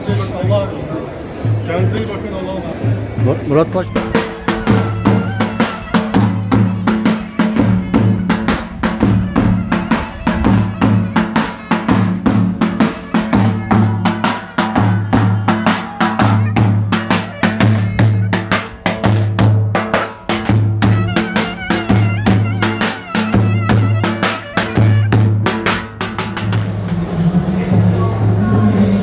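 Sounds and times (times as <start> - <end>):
bass drum beating: 2.7 - 27.9
clarinet melody: 3.7 - 19.2, 20.8 - 25.8.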